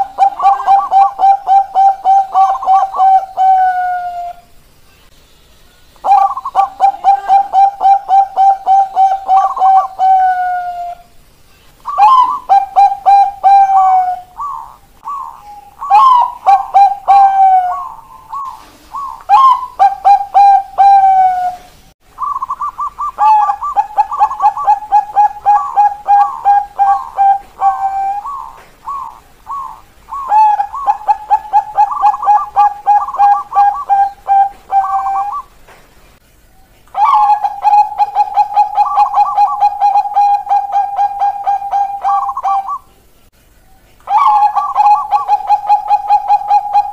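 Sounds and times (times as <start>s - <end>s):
doves cooing: 0.0s - 4.4s, 6.0s - 11.2s, 11.8s - 35.7s, 36.9s - 43.1s, 43.7s - 46.9s.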